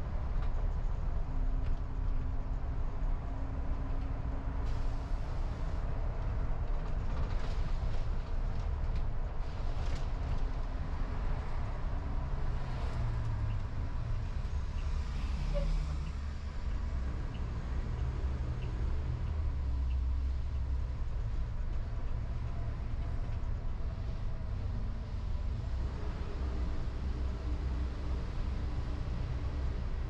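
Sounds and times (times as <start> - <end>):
car engine rumble: 0.0 - 30.0
tyres on road hiss: 4.6 - 5.8.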